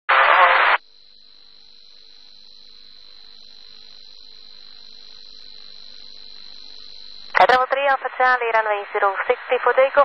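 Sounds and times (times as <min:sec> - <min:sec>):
radio static burst: 0:00.1 - 0:00.8, 0:03.2 - 0:10.0
high-pitched whine: 0:00.1 - 0:07.7.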